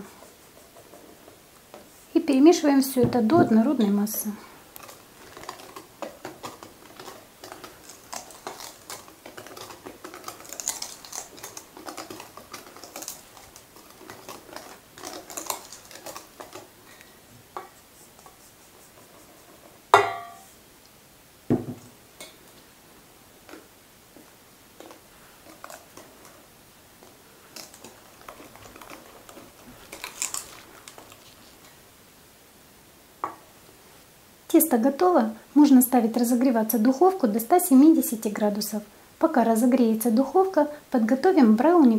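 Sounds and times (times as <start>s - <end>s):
sharp ringing knock: 20.0s - 20.4s.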